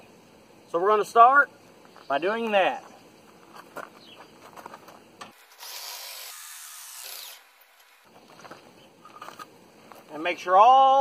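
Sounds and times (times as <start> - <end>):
cordless drill running: 5.4 - 7.8.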